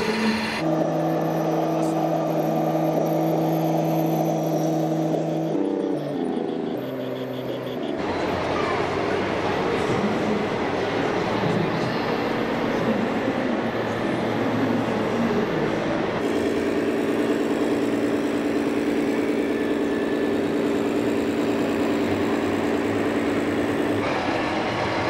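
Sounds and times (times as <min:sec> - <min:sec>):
busy exhibition hall noise: 0:05.8 - 0:25.0.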